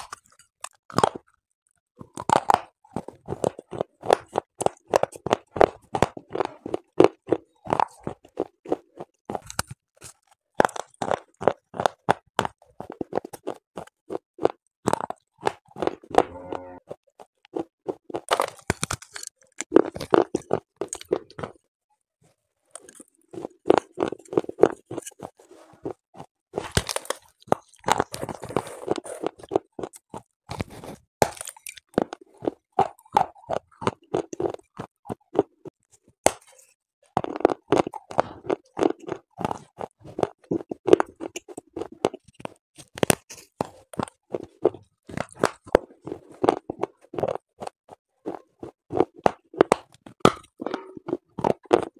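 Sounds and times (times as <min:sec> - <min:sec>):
gritty crunching of clay chewed: 0:00.0 - 0:21.7, 0:22.7 - 0:51.9.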